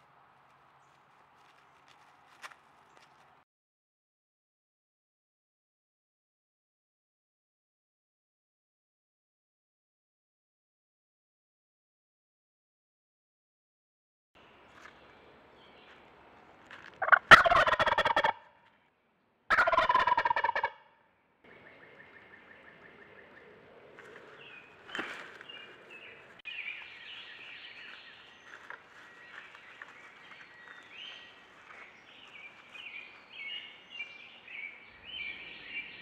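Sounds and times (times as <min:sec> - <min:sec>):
turkey gobbling: 0:16.9 - 0:18.5, 0:19.5 - 0:20.9
small bird calls: 0:21.5 - 0:36.0.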